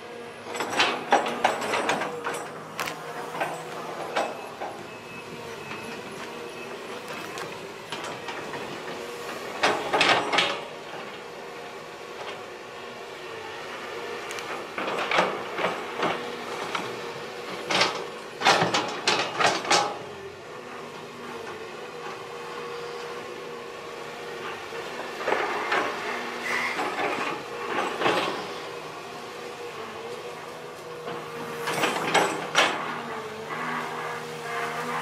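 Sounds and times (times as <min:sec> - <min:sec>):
excavator engine and hydraulic hum: 0:00.0 - 0:35.0.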